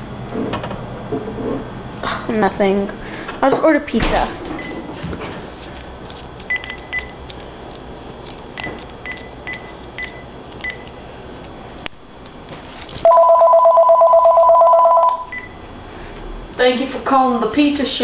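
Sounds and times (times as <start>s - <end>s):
phone keypad beeps: 6.5s - 7.2s, 9.0s - 10.9s, 13.1s - 15.6s
telephone ringing two-tone: 13.1s - 15.5s.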